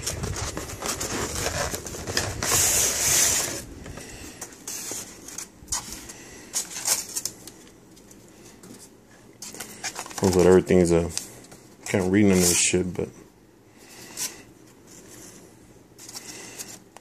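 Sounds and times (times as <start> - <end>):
foam scraping on cardboard: 0.0 - 3.7
styrofoam rustling and rubbing: 0.0 - 7.6, 8.8 - 11.2, 11.9 - 12.8.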